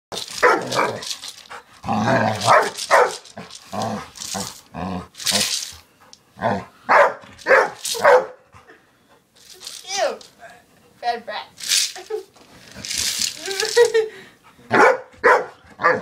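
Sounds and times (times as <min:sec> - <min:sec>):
dog barking: 0:00.4 - 0:00.9, 0:02.5 - 0:03.2, 0:06.9 - 0:08.4, 0:14.7 - 0:16.0.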